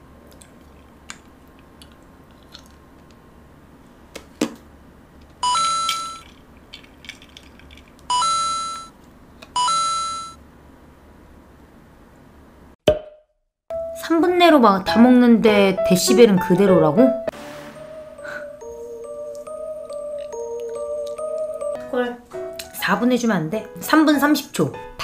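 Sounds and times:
eating clicks: 0:19.3 - 0:21.7.

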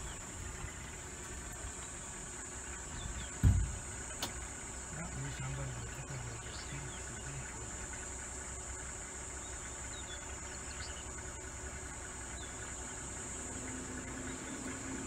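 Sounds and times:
dull thump: 0:03.0 - 0:04.4.

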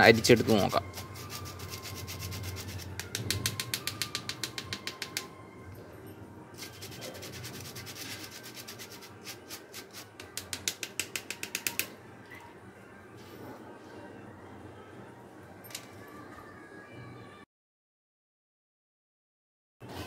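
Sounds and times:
metal spoon scraping mesh sieve: 0:06.6 - 0:10.2.

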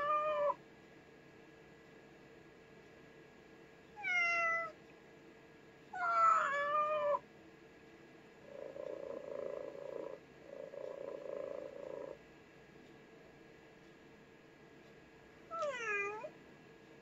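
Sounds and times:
recorded cat meow from speaker: 0:00.0 - 0:00.6, 0:04.0 - 0:04.8, 0:06.0 - 0:07.2, 0:15.5 - 0:16.3.

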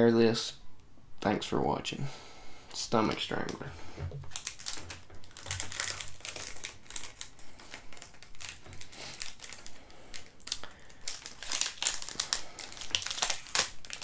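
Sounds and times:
chip pouch crinkling: 0:04.2 - 0:14.0.

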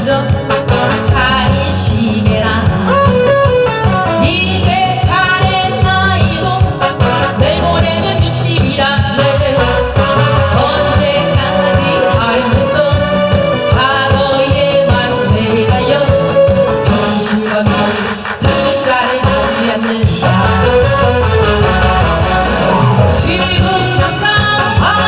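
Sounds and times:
woman singing into a microphone: 0:00.0 - 0:21.0, 0:23.1 - 0:25.0
backing track with steady beat: 0:00.0 - 0:25.0.

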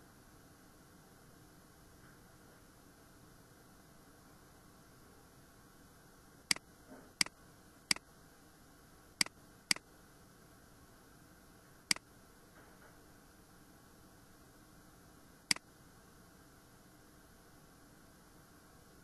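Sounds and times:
faint steady hiss: 0:00.0 - 0:19.0.

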